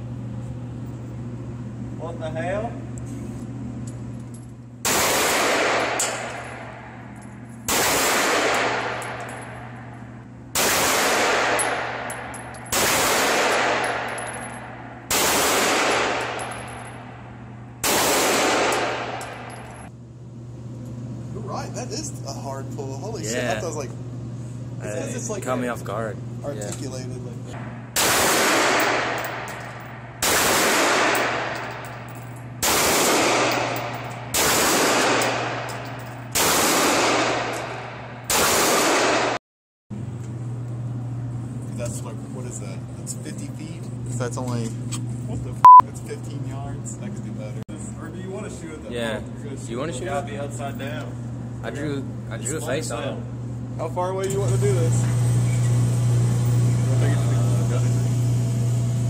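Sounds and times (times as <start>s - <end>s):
pistol shots echoing indoors: 4.8s - 7.1s, 7.7s - 9.8s, 10.5s - 17.2s, 17.8s - 19.5s, 27.6s - 31.8s, 32.6s - 39.4s.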